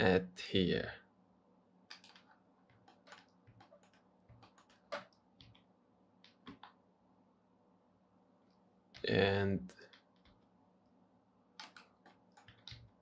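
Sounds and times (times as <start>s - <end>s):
computer keyboard key taps: 1.9s - 6.8s, 11.6s - 13.0s
mouse clicks: 11.6s - 13.0s.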